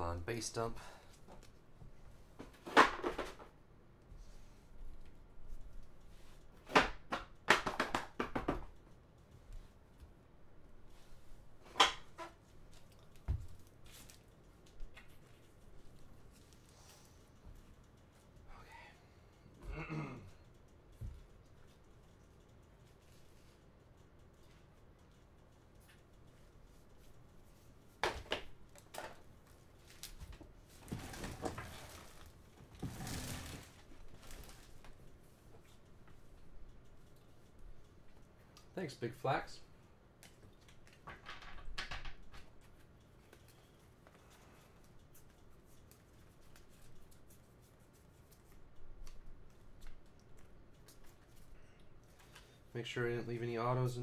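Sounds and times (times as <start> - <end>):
cards tapping on a tabletop: 6.7 - 8.7.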